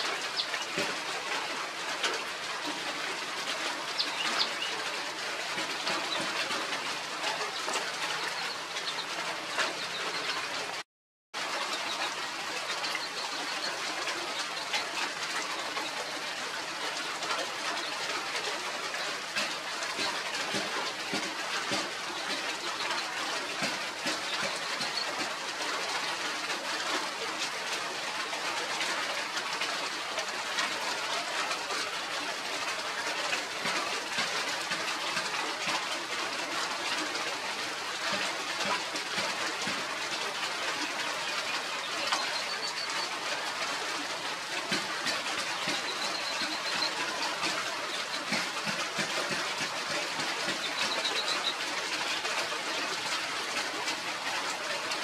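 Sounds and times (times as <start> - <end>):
birds chirping: 0.0 - 1.0, 3.6 - 10.8, 11.6 - 16.2, 18.9 - 25.3, 40.4 - 43.5, 44.6 - 52.3.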